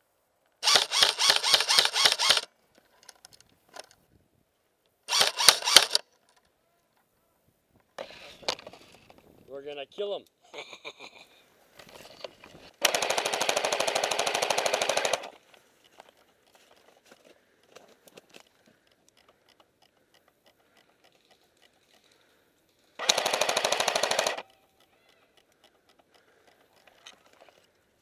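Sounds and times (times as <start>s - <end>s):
airsoft gun full-auto bursts: 0.6s - 2.5s, 5.1s - 6.0s, 12.8s - 15.4s, 23.0s - 24.5s.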